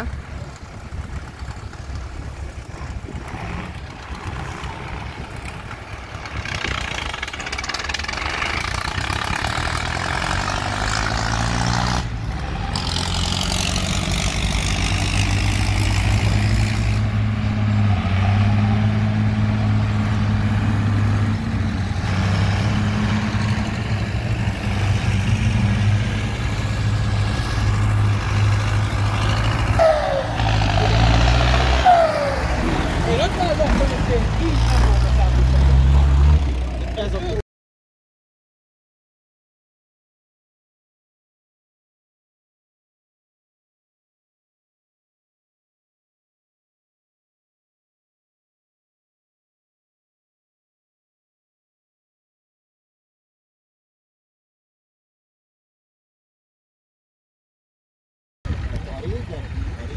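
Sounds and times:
tractor engine low drone: 0.0s - 37.4s, 58.5s - 59.9s
tractor engines running: 0.0s - 37.4s, 58.5s - 59.9s.

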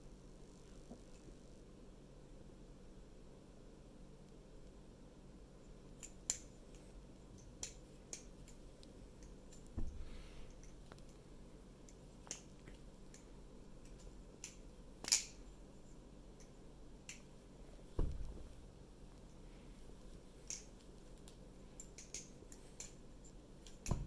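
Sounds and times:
butterfly knife handles clicking: 6.0s - 9.7s, 11.8s - 15.4s, 20.4s - 23.9s
dull thump: 18.0s - 18.5s.

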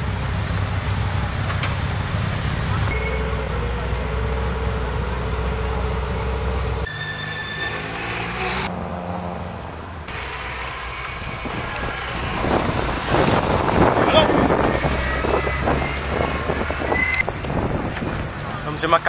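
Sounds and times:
car engine running: 0.0s - 6.9s, 10.1s - 18.6s
rising rush of noise: 2.4s - 7.0s, 10.1s - 18.5s.

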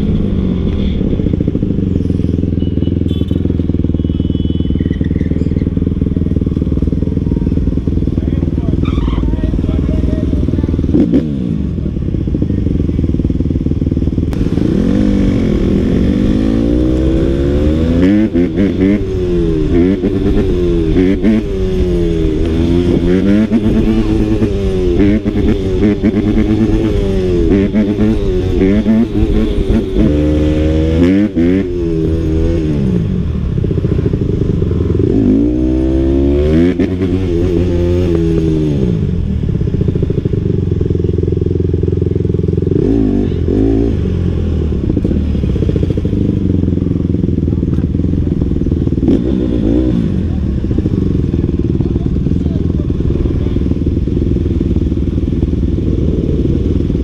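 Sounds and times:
dirt bike engine revving: 14.3s - 33.1s.

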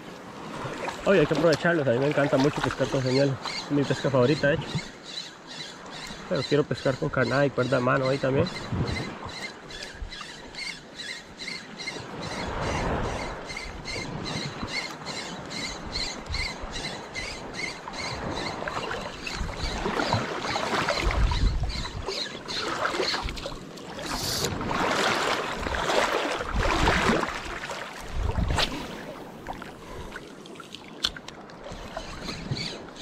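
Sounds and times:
sea water washing: 0.0s - 33.0s.

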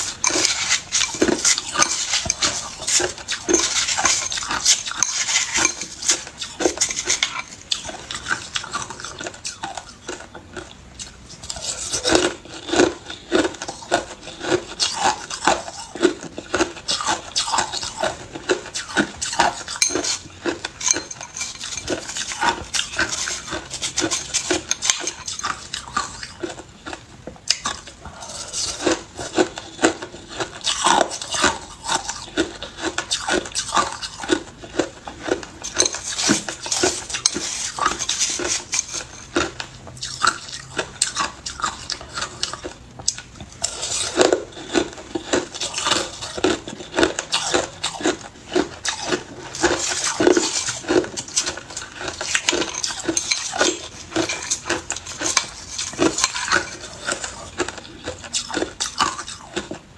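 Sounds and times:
ice being crunched and chewed: 0.0s - 59.9s
spoon clinking on glass bowl: 0.2s - 7.6s, 19.6s - 20.2s, 20.8s - 22.3s, 35.6s - 37.6s.

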